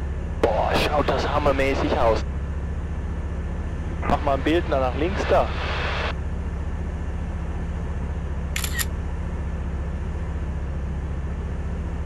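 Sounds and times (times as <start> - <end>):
aircraft engine droning: 0.0 - 12.0
camera shutter clicks: 8.6 - 8.9.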